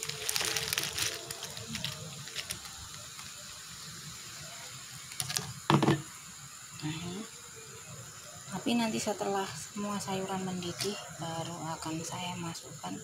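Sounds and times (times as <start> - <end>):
vegetables splashing into a pot: 0.0 - 6.3
boiling pot hissing: 0.0 - 13.0.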